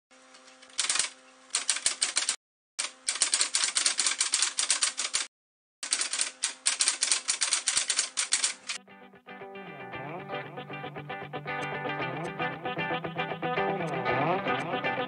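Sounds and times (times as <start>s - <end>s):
typewriter keystrokes: 0.7s - 8.8s.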